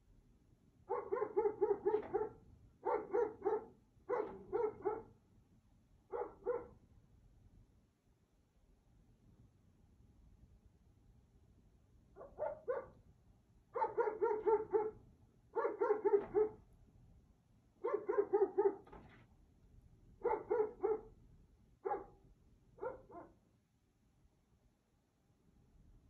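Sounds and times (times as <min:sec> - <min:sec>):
dog barking: 0:00.9 - 0:05.2, 0:06.1 - 0:06.8, 0:12.2 - 0:13.0, 0:13.8 - 0:16.6, 0:17.8 - 0:19.0, 0:20.2 - 0:21.1, 0:21.8 - 0:22.2, 0:22.8 - 0:23.4.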